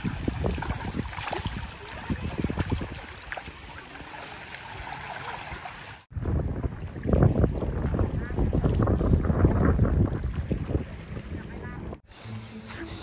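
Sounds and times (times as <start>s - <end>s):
net hauled through water: 0.0s - 6.1s
seawater lapping and splashing: 0.0s - 6.1s, 6.7s - 12.0s
splashes from wading: 0.0s - 6.1s.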